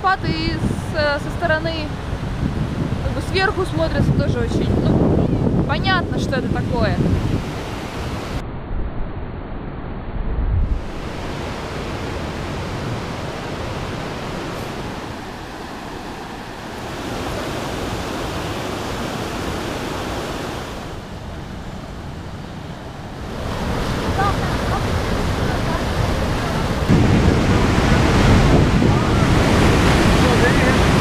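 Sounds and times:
wind buffeting microphone: 0.0s - 31.0s
white-water rapids rushing: 10.9s - 21.3s, 22.8s - 31.0s.

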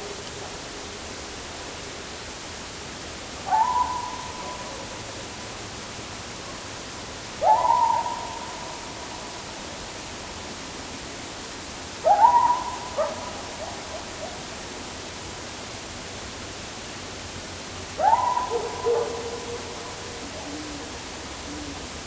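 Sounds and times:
steady hiss: 0.0s - 22.0s
loud hooting calls: 18.0s - 21.9s.

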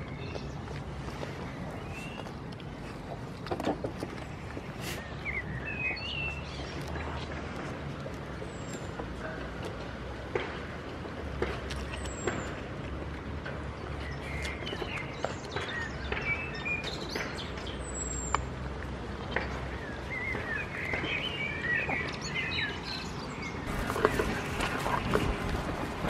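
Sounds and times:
small birds chirping: 0.0s - 9.1s, 13.6s - 18.6s, 19.2s - 26.0s
steady low rumble: 23.6s - 26.0s.

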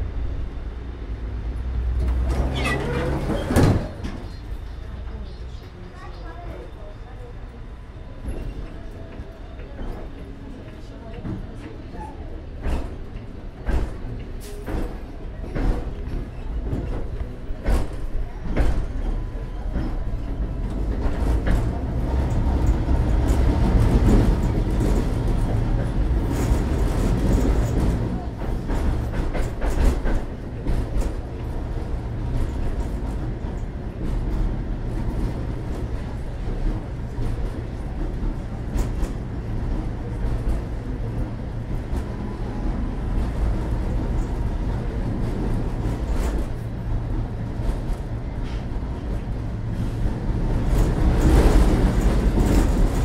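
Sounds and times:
tram wheels rumbling: 0.0s - 53.0s.

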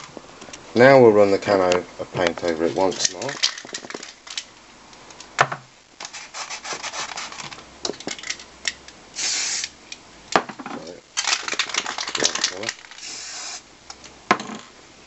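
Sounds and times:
spray can rattling: 2.9s - 4.5s, 6.0s - 8.5s, 9.2s - 9.7s, 11.2s - 13.6s
spray paint hissing: 6.0s - 7.4s, 9.2s - 9.8s, 11.5s - 13.7s.

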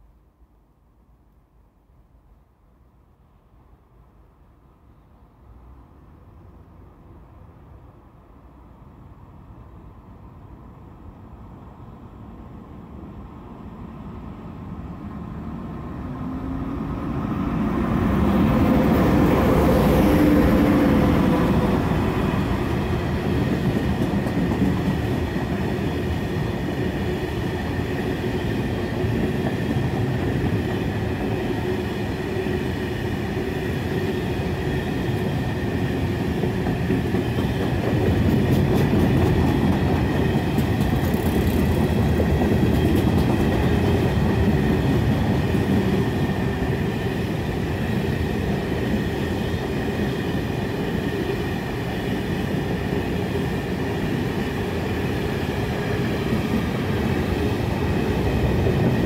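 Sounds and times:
electric locomotive humming: 11.8s - 59.0s
train wagons rumbling and clattering: 16.2s - 59.0s.

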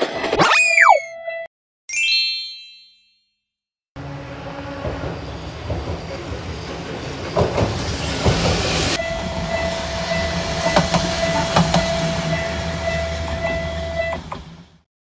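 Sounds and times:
steady high tone: 0.4s - 1.2s
train running rumble: 4.0s - 14.8s.

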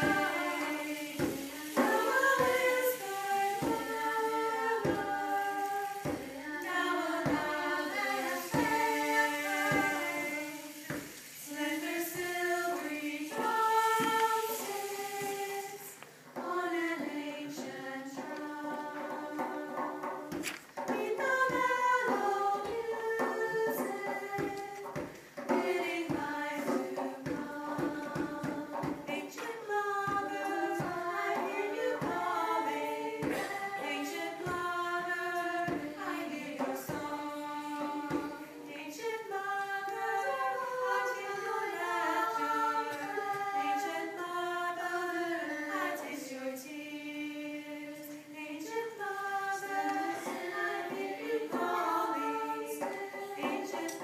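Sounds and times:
sharp percussive knocks: 0.0s - 39.4s
women singing a cappella: 0.0s - 54.0s.

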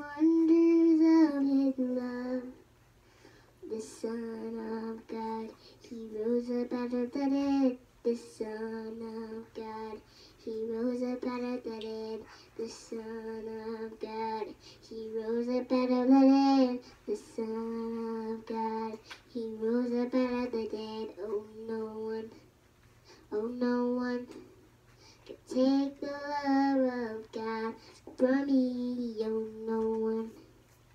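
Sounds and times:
girl singing: 0.0s - 2.7s, 3.6s - 22.5s, 23.1s - 24.6s, 25.2s - 30.6s.

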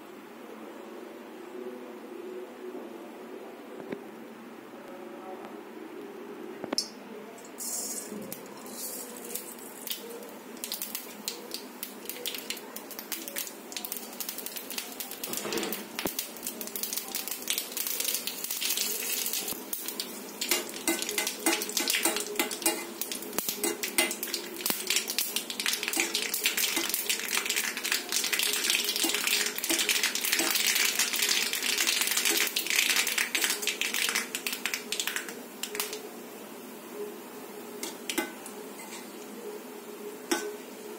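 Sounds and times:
spices sizzling in hot oil: 7.5s - 36.1s.

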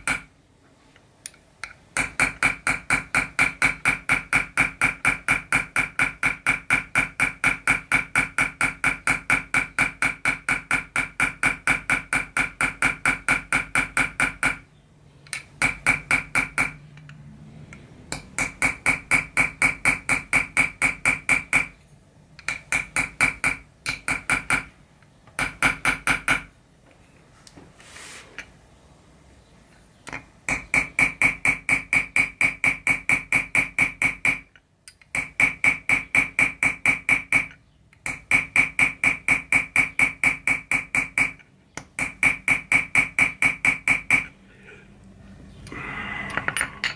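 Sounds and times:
hammer tapping metal tool: 0.0s - 0.3s, 1.6s - 14.6s, 15.3s - 17.2s, 18.1s - 21.8s, 22.4s - 24.7s, 25.3s - 26.5s, 30.1s - 44.4s, 46.3s - 46.9s.

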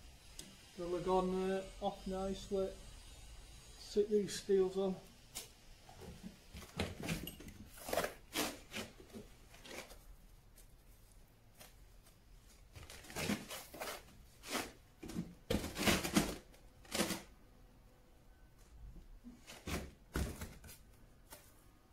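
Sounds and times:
trowel scraping mortar: 7.1s - 10.0s, 13.1s - 17.3s.

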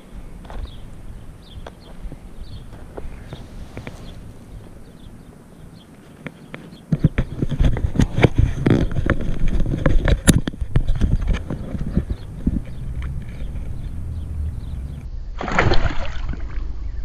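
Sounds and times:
fish splashing into water: 15.4s - 16.7s.

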